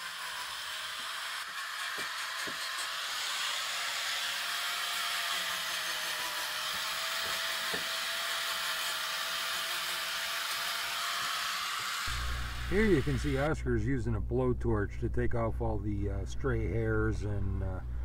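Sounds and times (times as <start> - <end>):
angle grinder whine: 0.0 - 13.5.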